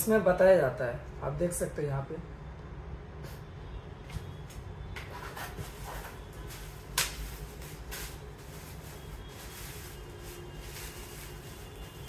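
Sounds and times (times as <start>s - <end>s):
packaging rustling and crinkling: 5.4s - 12.0s
bubble wrap crackle: 5.7s - 12.0s.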